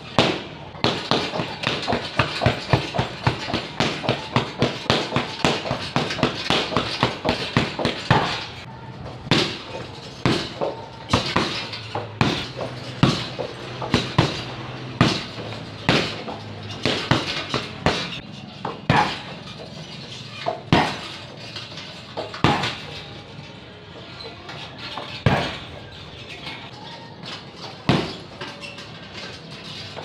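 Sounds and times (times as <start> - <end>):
kicks smacking heavy bag: 0.1 - 8.6, 9.2 - 18.2, 18.8 - 19.4, 20.7 - 21.2, 22.4 - 22.9, 25.1 - 25.7, 27.9 - 28.3.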